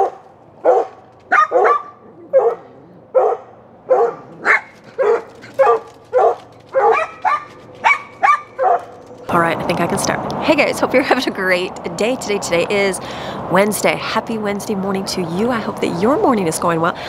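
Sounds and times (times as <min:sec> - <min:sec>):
dogs barking: 0:00.0 - 0:09.0.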